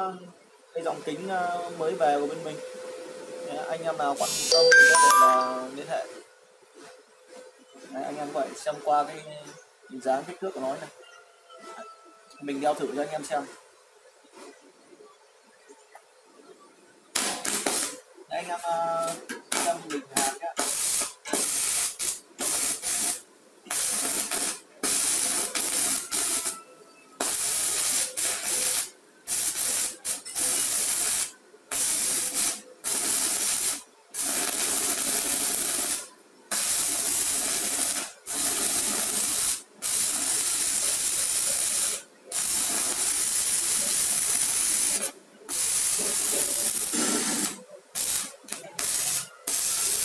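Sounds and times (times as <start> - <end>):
welding arc crackling hiss: 3.7 - 5.5, 17.1 - 50.0.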